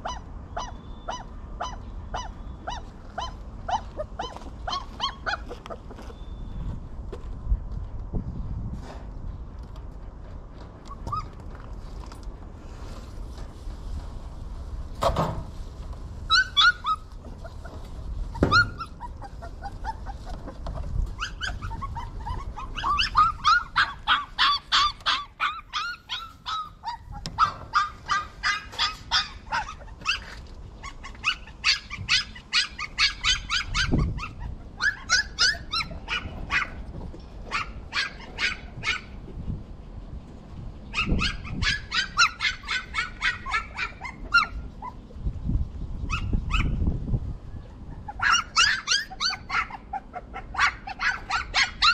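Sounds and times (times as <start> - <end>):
puppies whimpering and yipping: 0.0 - 6.5, 10.8 - 11.5, 16.2 - 39.7, 40.8 - 45.2, 46.0 - 46.8, 47.5 - 51.9.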